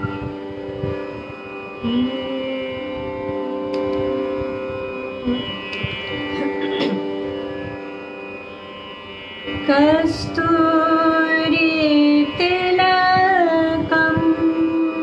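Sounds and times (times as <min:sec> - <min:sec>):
steady drone: 0:00.0 - 0:15.0
woman singing: 0:01.8 - 0:05.8, 0:09.6 - 0:15.0.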